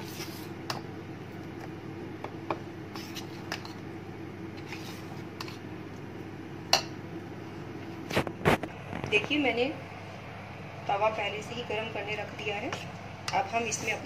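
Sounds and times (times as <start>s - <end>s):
spoon stirring batter: 0.0s - 5.8s
steady low hum: 0.0s - 14.0s.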